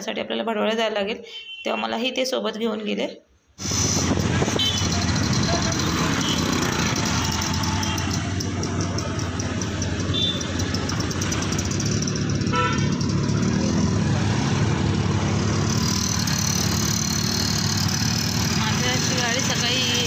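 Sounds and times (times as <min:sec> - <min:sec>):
wind rushing: 0:03.6 - 0:04.7
passing vehicles: 0:03.6 - 0:20.0
motorbike engine running: 0:03.7 - 0:20.0
horn toots: 0:03.8 - 0:08.3, 0:10.0 - 0:10.6, 0:12.3 - 0:13.2.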